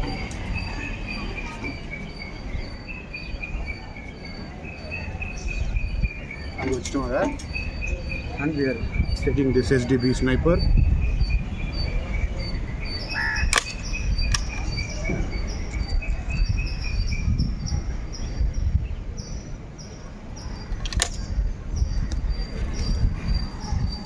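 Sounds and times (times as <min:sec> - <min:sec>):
wind rumble on microphone: 0:00.0 - 0:24.0
air rifle clicks: 0:13.5 - 0:14.7, 0:20.8 - 0:21.3.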